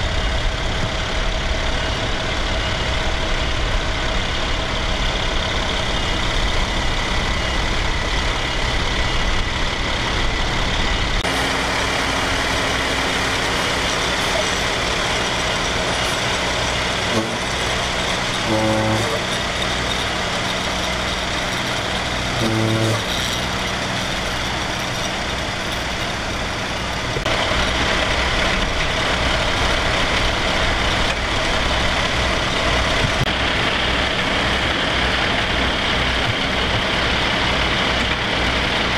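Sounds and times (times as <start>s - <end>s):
fire engine running: 0.0s - 38.9s
short pitched sounds: 11.2s - 19.8s, 22.3s - 23.6s.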